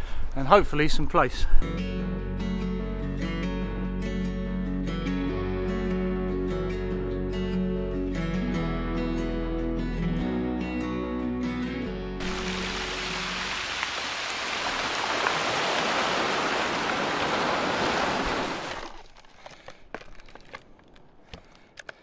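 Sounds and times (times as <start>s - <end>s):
surf breaking on shingle beach: 12.2s - 19.0s.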